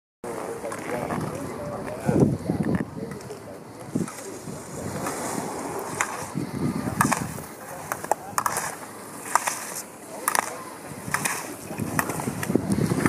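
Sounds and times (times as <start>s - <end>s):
skis scraping on snow: 3.9s - 13.0s.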